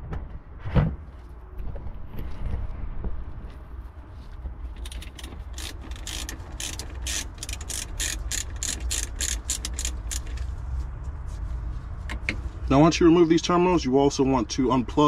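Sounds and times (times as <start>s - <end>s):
hand ratchet clicking: 4.8s - 10.4s.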